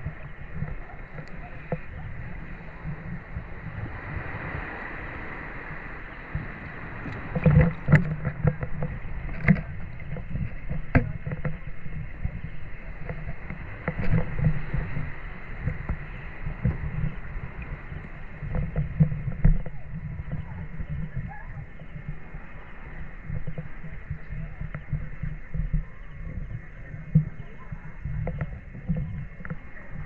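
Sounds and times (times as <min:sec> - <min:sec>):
shallow water sloshing: 0:00.0 - 0:30.0
small splashes and knocks: 0:07.0 - 0:12.4.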